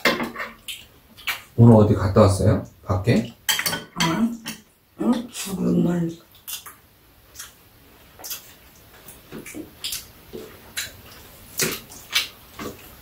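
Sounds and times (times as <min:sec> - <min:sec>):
spoon and chopsticks clinking on bowls: 0:03.5 - 0:04.7.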